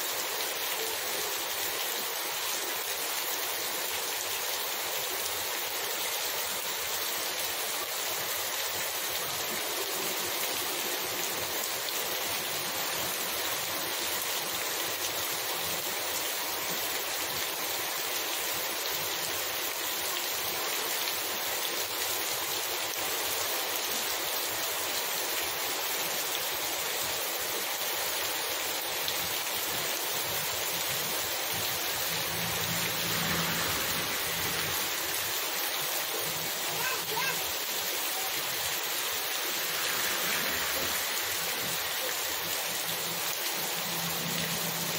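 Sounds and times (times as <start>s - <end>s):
heavy rain on street: 0.0s - 44.9s
truck driving past: 32.1s - 34.9s.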